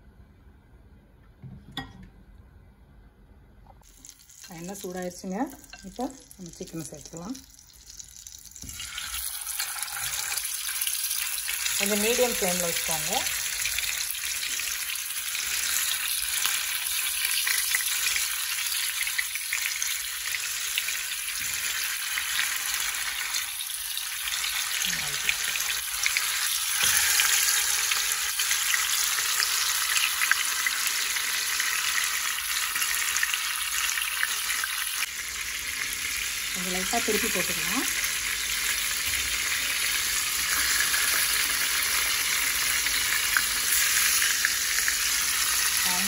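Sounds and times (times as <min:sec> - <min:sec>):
chicken sizzling in hot oil: 0:03.8 - 0:46.0.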